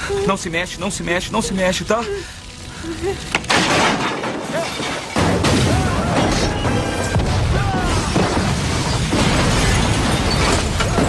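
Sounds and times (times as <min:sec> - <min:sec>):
explosion boom and rumble: 0:05.2 - 0:11.0.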